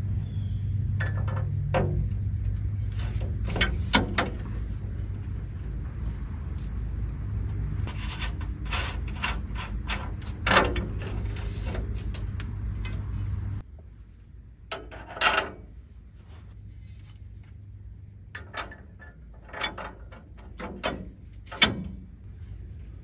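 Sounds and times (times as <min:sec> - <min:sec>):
metal clinks and knocks: 0:00.9 - 0:05.8, 0:06.5 - 0:13.1, 0:18.3 - 0:22.1.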